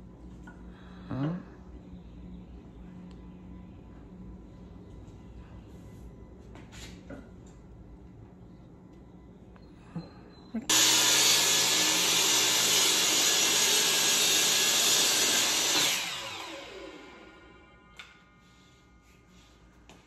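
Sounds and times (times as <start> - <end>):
miter saw cutting wood: 10.7 - 17.6
saw blade spinning down: 10.7 - 17.6.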